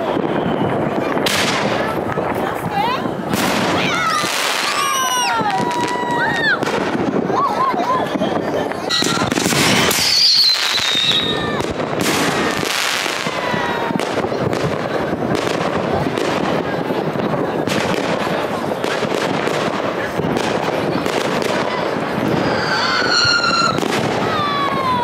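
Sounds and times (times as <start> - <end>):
fireworks bangs and crackling: 0.0 - 25.0
firework whistle falling in pitch: 8.9 - 11.6, 22.4 - 24.8.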